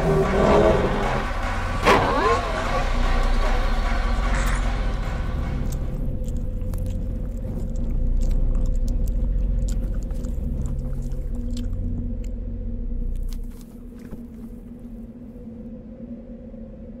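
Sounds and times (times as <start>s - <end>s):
low rumble with hum: 0.0s - 17.0s
wet chewing and biting: 5.7s - 15.0s.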